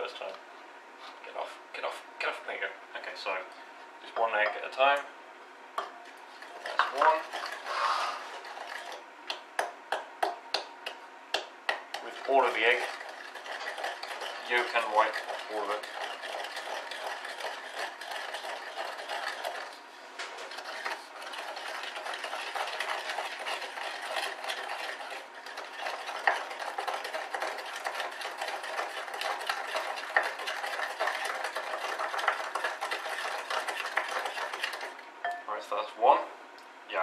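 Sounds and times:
wooden spoon scraping in bowl: 0:12.0 - 0:35.0.

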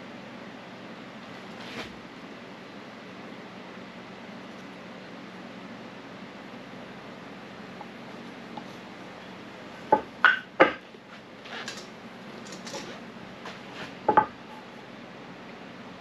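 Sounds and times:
scraping and rustling: 0:01.4 - 0:02.0
hand tools knocking on wood: 0:09.9 - 0:10.8, 0:14.1 - 0:14.3.

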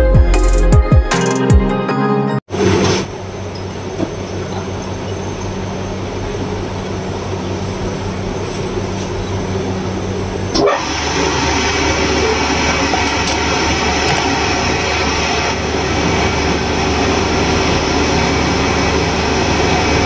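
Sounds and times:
test bench mechanical hum: 0:02.5 - 0:20.0.

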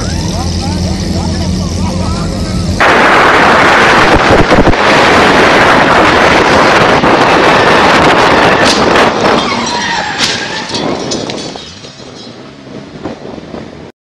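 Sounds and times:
sports car engine running fast: 0:00.0 - 0:11.6
wind rushing over microphone: 0:02.8 - 0:13.9.

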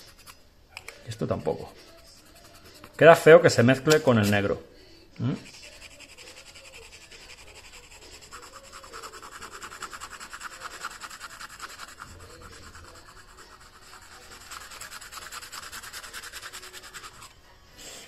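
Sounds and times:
colored pencil scratching: 0:01.5 - 0:03.3, 0:05.4 - 0:17.4.

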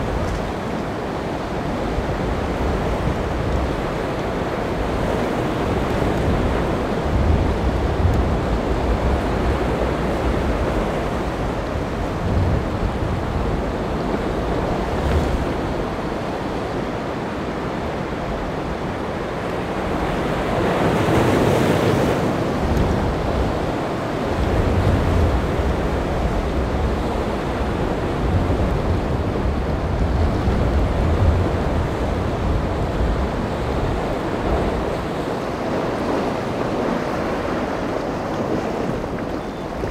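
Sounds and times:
surf and rough water: 0:00.0 - 0:39.9
wind buffeting microphone: 0:00.0 - 0:39.9.

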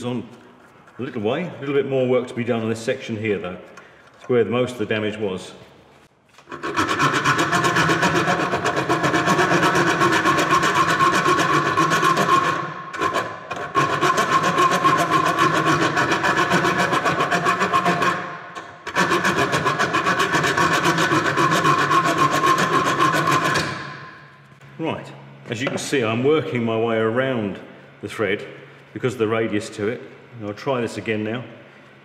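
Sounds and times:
file rasping on steel bolt: 0:06.5 - 0:24.0.

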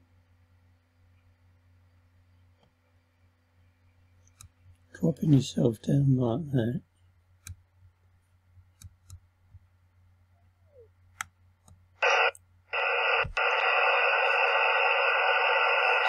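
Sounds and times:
computer mouse clicks: 0:08.8 - 0:09.2
steady rushing noise from video: 0:12.0 - 0:16.0.

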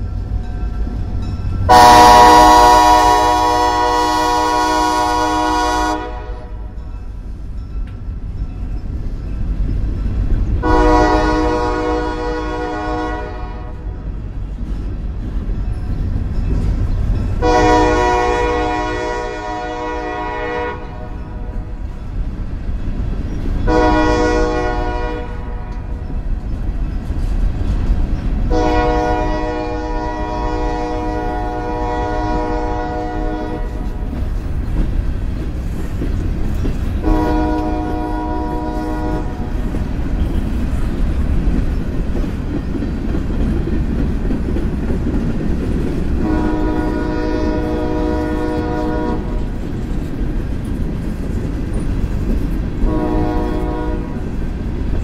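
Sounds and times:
locomotive air horn blasts: 0:01.7 - 0:06.7, 0:10.6 - 0:14.0, 0:17.4 - 0:21.5, 0:23.7 - 0:26.0, 0:28.5 - 0:33.9, 0:37.0 - 0:39.6, 0:46.2 - 0:49.5, 0:52.8 - 0:54.3.

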